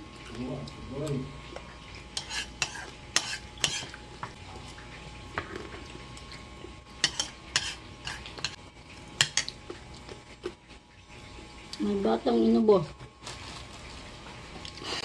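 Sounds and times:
metal spoon scraping a bowl: 2.2s - 4.0s, 7.0s - 8.6s.

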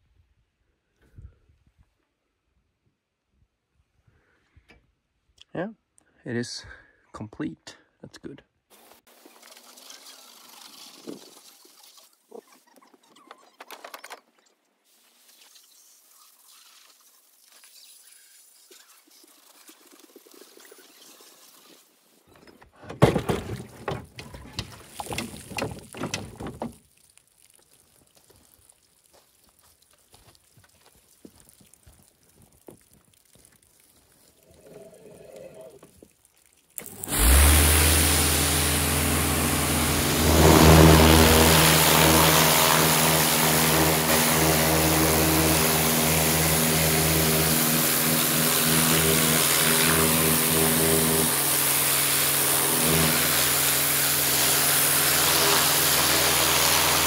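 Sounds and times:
pressure washer spraying: 9.1s - 12.1s, 14.9s - 22.0s, 36.8s - 57.0s
knocking and rattling: 22.4s - 26.8s.

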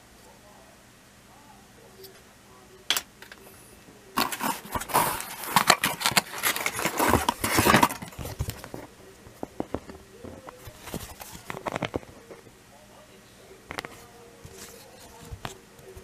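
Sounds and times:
packaging rustling and scraping: 4.2s - 12.4s, 13.8s - 16.0s.

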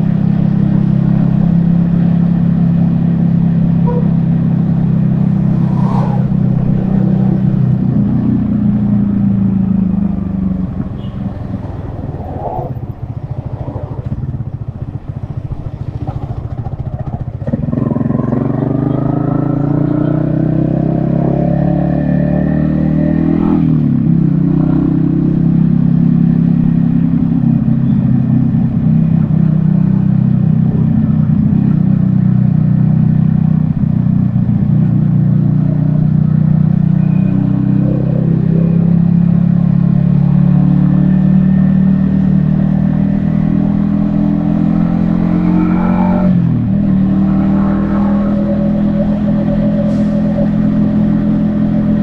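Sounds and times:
motorcycle engine accelerating: 0.0s - 52.0s.

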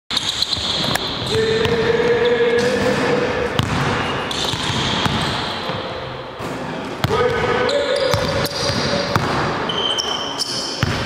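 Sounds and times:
basketballs bouncing on wooden floor: 0.5s - 5.8s, 6.4s - 9.6s, 10.8s - 11.0s.

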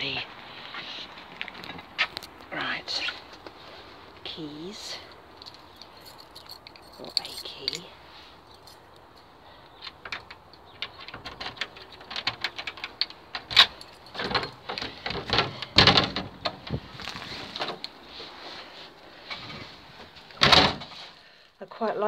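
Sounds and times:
keys clinking: 5.3s - 9.3s, 11.8s - 15.0s
knocks and bumps: 10.0s - 17.8s
door being unlocked and opened: 10.1s - 16.6s.

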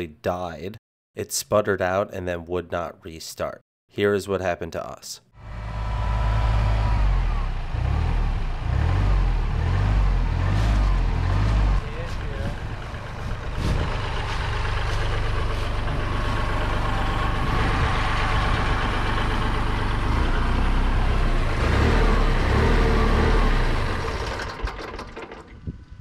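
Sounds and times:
tractor diesel engine running: 5.4s - 26.0s.

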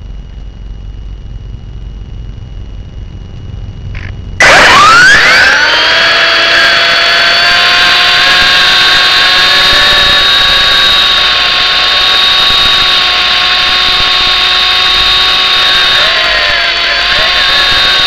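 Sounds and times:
toy helicopter motor whine: 4.0s - 18.0s.

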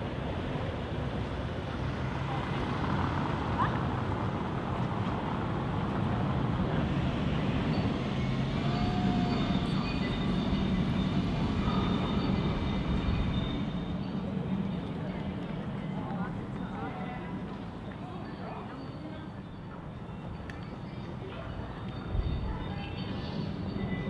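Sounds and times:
low rumble of traffic: 0.0s - 24.0s.

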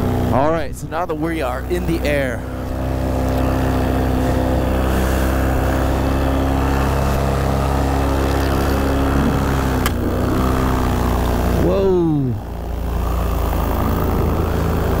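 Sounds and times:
paramotor engine running: 0.0s - 15.0s
sharp crack on propeller: 6.6s - 11.6s.

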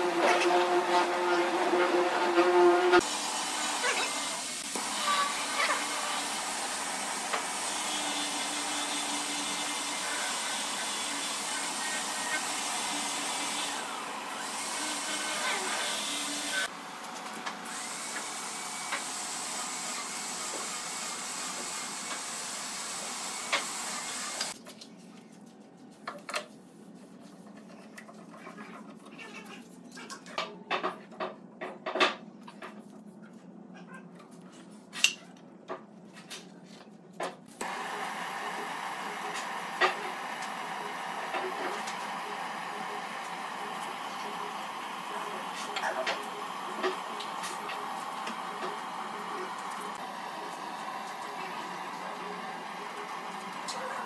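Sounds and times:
butane torch hissing: 37.6s - 53.7s.

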